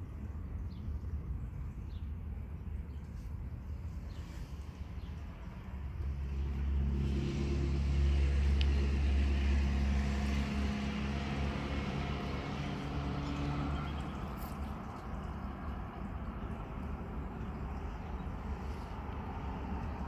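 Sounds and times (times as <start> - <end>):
vehicle engine passing: 5.1 - 20.0.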